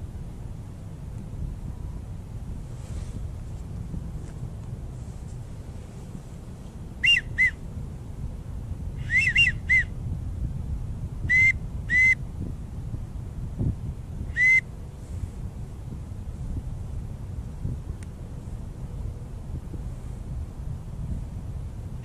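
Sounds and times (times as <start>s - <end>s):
low rumble of wind: 0.0s - 22.0s
duck whistle notes: 7.0s - 7.6s, 9.0s - 9.9s, 11.3s - 12.2s, 14.3s - 14.6s.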